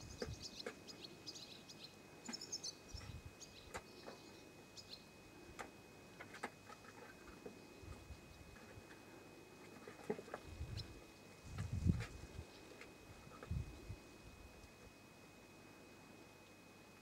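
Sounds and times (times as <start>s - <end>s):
bird chirps: 0.0s - 5.1s.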